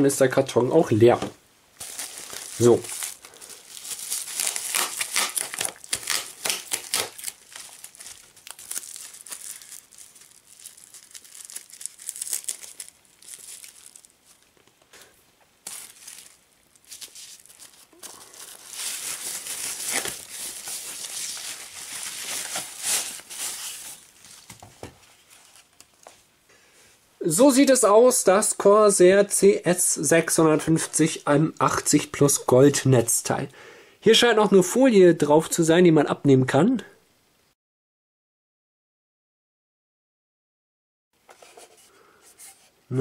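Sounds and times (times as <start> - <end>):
bubble wrap crinkling: 1.8 - 26.3.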